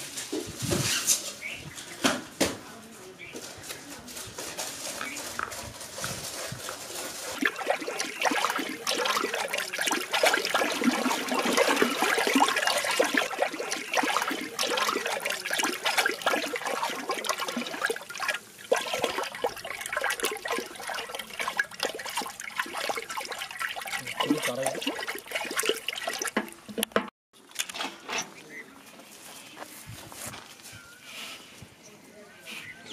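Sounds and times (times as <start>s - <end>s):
water sloshing and splashing: 5.9s - 27.1s.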